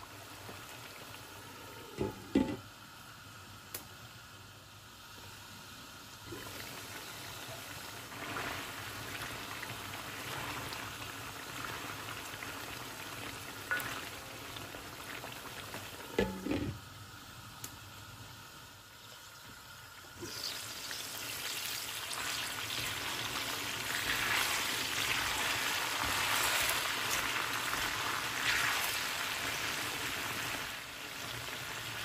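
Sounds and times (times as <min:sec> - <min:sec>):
knocks on pan: 0:02.0 - 0:02.6, 0:16.2 - 0:16.8
food sizzling in oil: 0:05.0 - 0:32.0
glass lid clattering on pan: 0:16.2 - 0:16.8.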